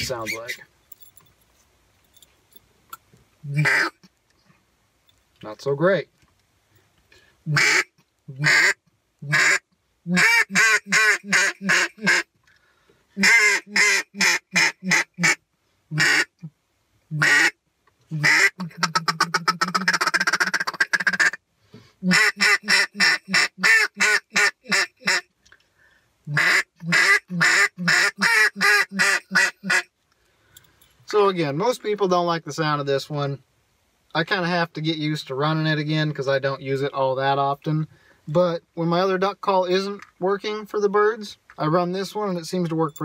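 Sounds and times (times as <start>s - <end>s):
duck call quacking: 0.0s - 0.6s, 3.5s - 4.1s, 7.5s - 12.3s, 13.2s - 16.4s, 17.1s - 17.6s, 18.2s - 21.4s, 22.0s - 25.3s, 26.3s - 29.9s
duck call rapid clucks: 3.6s - 4.0s, 7.5s - 12.3s, 13.2s - 15.4s, 16.0s - 16.3s, 17.2s - 17.6s, 18.2s - 21.4s, 22.1s - 25.2s, 26.3s - 29.9s.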